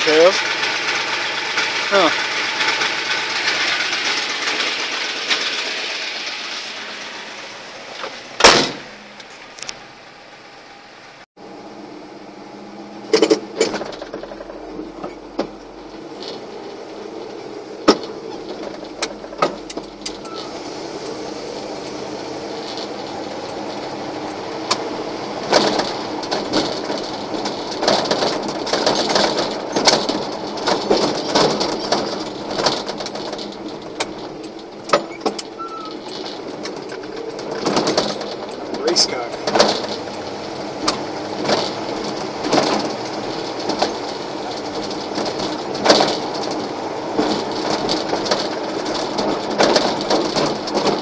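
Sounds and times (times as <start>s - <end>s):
road noise: 0.0s - 51.0s
truck engine running: 0.0s - 51.0s
cab knocks and rattles: 13.1s - 51.0s.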